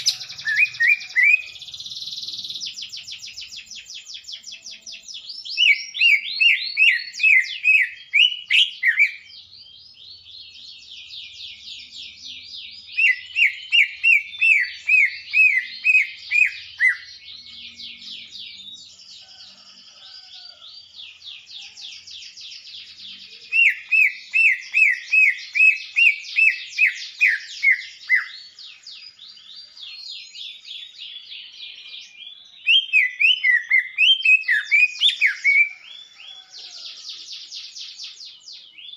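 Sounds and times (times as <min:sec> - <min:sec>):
bird twittering: 0:00.0 - 0:09.4.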